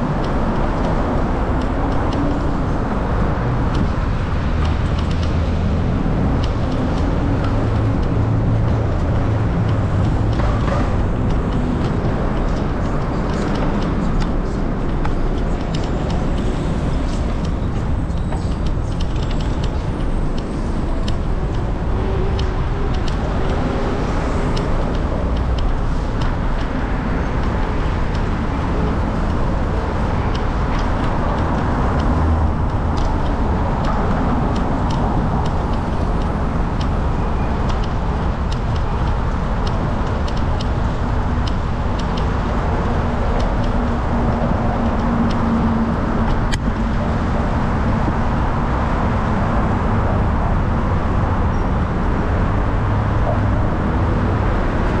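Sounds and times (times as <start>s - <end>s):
traffic noise: 0.0s - 55.0s
wind rush on microphone: 0.0s - 55.0s.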